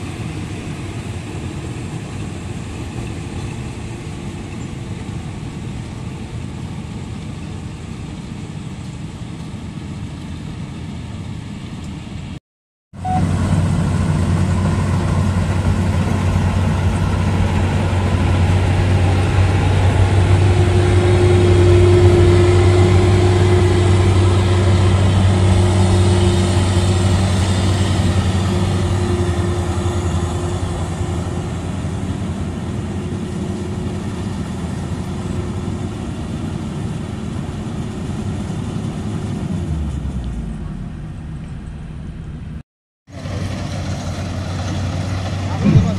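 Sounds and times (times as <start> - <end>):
combine harvester engine running: 13.0 - 45.9.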